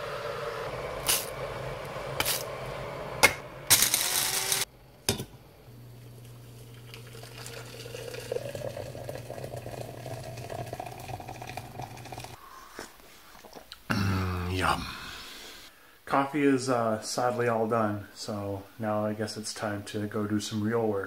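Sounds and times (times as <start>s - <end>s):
electric kettle heating water: 0.0s - 12.4s
coffee grinder grinding beans: 1.0s - 2.5s, 3.7s - 4.7s, 5.9s - 12.4s.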